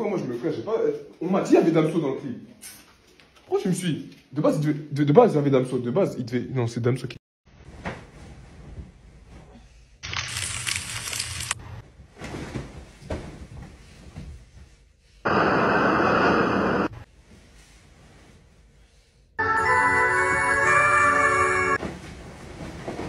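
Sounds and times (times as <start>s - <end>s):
bedding rustling: 7.6s - 9.5s, 11.4s - 15.0s, 21.8s - 23.0s
blizzard wind rushing: 15.3s - 17.1s.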